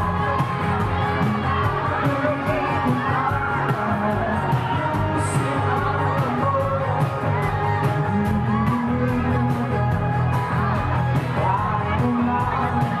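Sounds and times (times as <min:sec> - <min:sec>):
drums keeping steady beat: 0:00.0 - 0:13.0
person singing lead vocal: 0:00.0 - 0:13.0
pop-rock band playing: 0:00.0 - 0:13.0.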